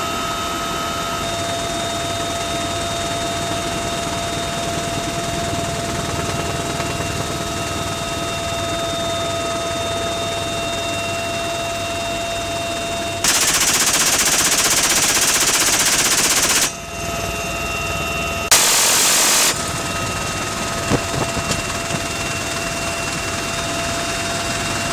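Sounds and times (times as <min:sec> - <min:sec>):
helicopter engine and rotor: 0:00.0 - 0:24.9
minigun firing bursts: 0:13.2 - 0:16.8, 0:18.5 - 0:19.9.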